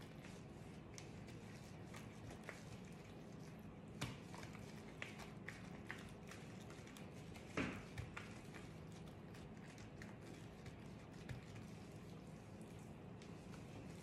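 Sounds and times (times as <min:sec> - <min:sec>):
hands pressing dough: 0:00.0 - 0:14.0
dough slaps: 0:03.8 - 0:11.8.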